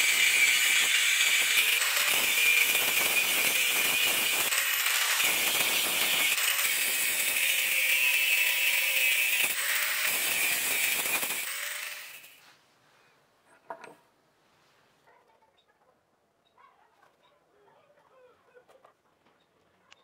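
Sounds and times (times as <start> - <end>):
angle grinder cutting steel: 0.0 - 12.4.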